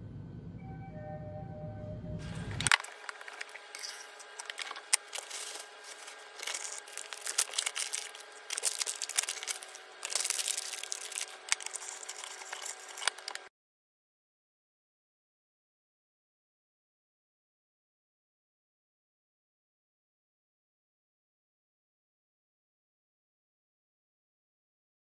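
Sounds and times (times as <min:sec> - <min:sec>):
faint steady hum: 0:00.0 - 0:13.5
plastic bag crinkling: 0:02.6 - 0:13.5.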